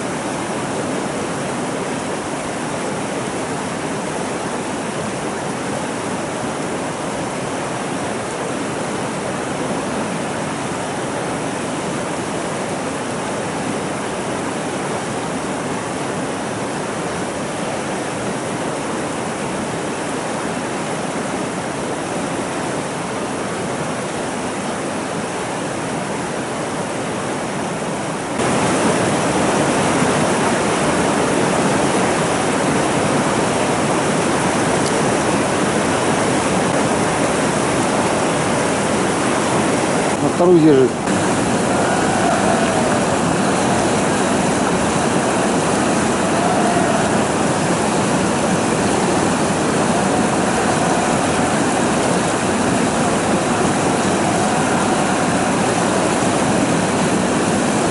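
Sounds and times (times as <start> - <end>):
river water rushing over boulders: 0.0 - 57.9.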